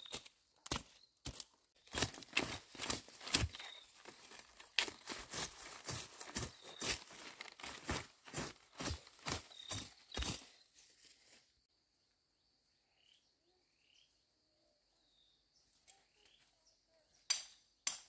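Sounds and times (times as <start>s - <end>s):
crunching in dry vegetation: 0.0s - 11.6s
bird chirps: 3.5s - 4.3s, 5.9s - 10.9s, 12.7s - 17.9s.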